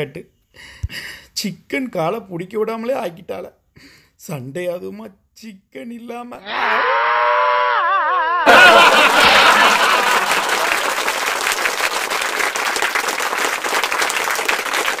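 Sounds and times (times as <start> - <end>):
audience applause: 8.4 - 15.0.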